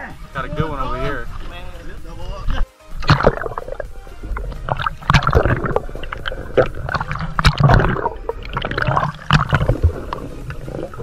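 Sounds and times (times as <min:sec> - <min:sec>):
muffled water churning underwater: 0:03.0 - 0:11.0.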